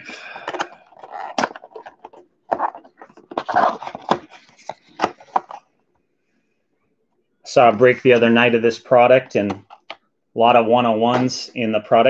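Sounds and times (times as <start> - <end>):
cardboard and paper rustling: 0.2 - 5.7.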